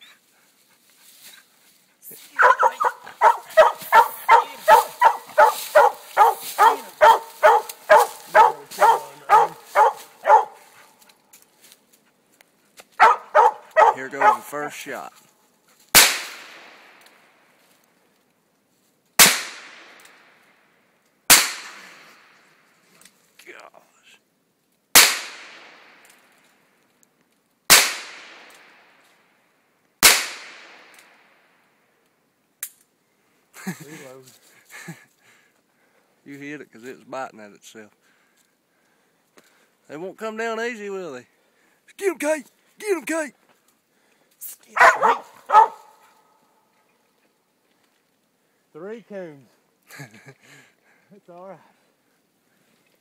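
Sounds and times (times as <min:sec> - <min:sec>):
gunshots echoing: 0:02.4 - 0:10.5, 0:13.0 - 0:14.5, 0:16.0 - 0:17.0, 0:19.2 - 0:20.3, 0:21.3 - 0:22.4, 0:25.0 - 0:26.0, 0:27.7 - 0:28.9, 0:30.0 - 0:31.0
dog barking rapidly: 0:02.4 - 0:10.7, 0:13.0 - 0:14.6, 0:44.8 - 0:46.0.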